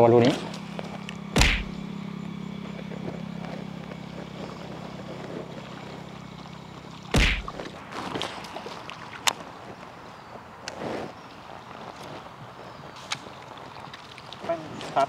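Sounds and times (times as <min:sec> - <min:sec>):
steady low hum: 0:00.4 - 0:07.9
fishing rod swish: 0:01.4 - 0:01.8, 0:07.2 - 0:07.7.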